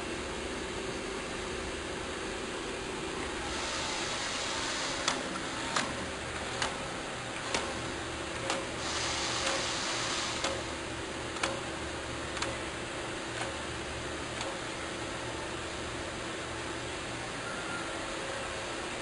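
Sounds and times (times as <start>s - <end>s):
hydraulic hiss and hum: 0.0s - 19.0s
sharp clicks: 8.4s - 8.7s, 10.4s - 10.6s, 11.4s - 11.6s, 12.3s - 12.6s.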